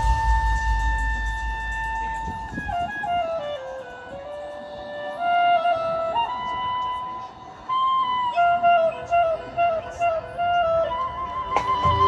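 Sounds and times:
marching band wind section melody: 0.0 - 9.5.

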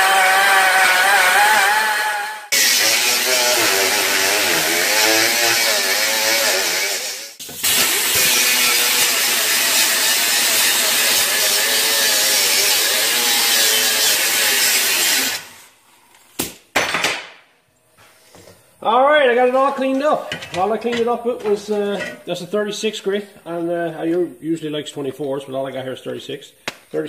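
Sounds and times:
angle grinder grinding sheet steel: 0.0 - 15.7.

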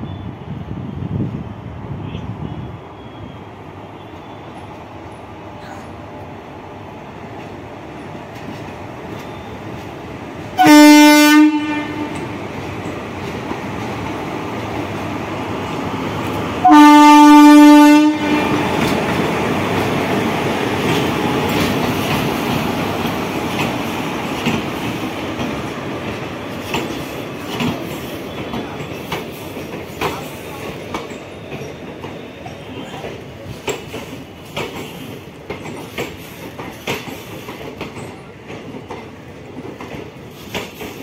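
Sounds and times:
rumble of passing train: 0.0 - 41.0
train horn blasts: 10.6 - 12.4, 16.6 - 18.9
wheels clicking over rail joints: 18.7 - 41.0.

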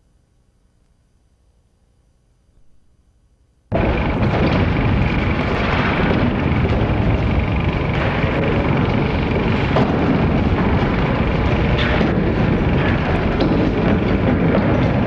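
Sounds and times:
film soundtrack rumbling: 3.7 - 15.0.

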